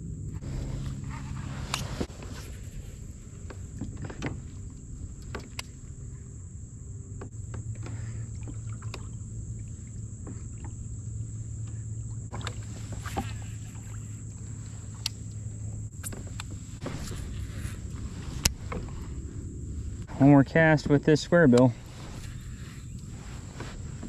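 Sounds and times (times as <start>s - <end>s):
steady low hum: 0.0s - 24.0s
clicks and knocks of kayak hull: 0.6s - 15.2s, 16.0s - 20.1s.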